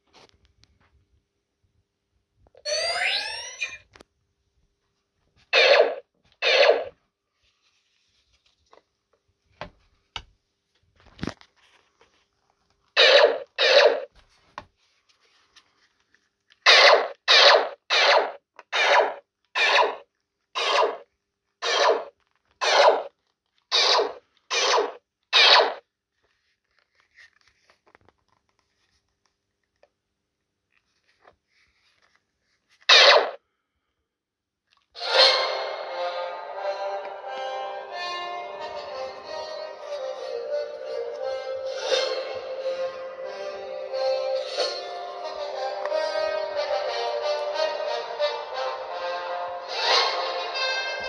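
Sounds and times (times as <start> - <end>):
electronic blaster shots: 5.6 - 6.9, 13.0 - 14.1, 16.7 - 20.0, 20.6 - 21.0, 21.6 - 23.1, 23.7 - 25.8, 32.9 - 33.4.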